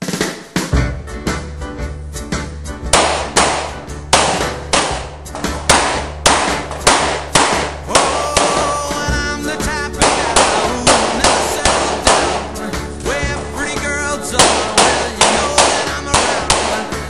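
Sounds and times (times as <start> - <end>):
rock and roll song: 0.0 - 17.0
sharp pistol shots: 2.9 - 8.8, 10.0 - 12.7, 14.4 - 17.0.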